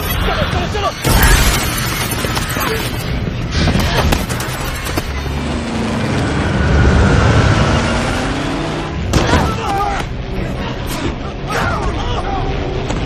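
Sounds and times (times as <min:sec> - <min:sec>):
heavy low rumble: 0:05.2 - 0:09.1.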